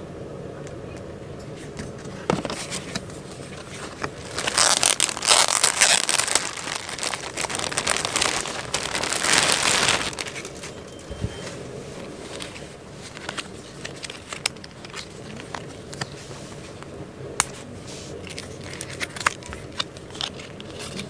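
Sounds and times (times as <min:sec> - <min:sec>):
plastic bag crinkling: 0:03.6 - 0:10.8.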